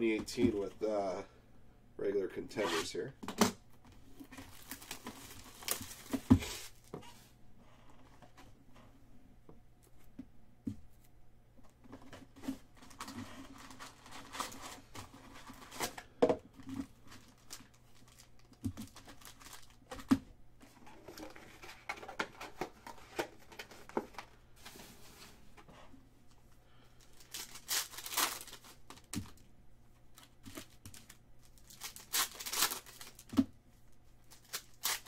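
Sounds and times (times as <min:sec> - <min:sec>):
foil wrappers crinkling and tearing: 0:04.2 - 0:06.7, 0:12.8 - 0:16.1, 0:16.8 - 0:20.1, 0:26.9 - 0:29.4, 0:30.2 - 0:33.4, 0:34.2 - 0:35.0
cards rustling: 0:27.0 - 0:29.4, 0:30.2 - 0:33.4.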